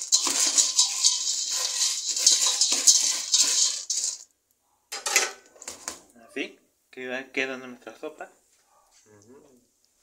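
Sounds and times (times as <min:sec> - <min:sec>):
spatula scraping metal pot: 0:00.0 - 0:04.2
pasta sizzling in oil: 0:00.0 - 0:04.3.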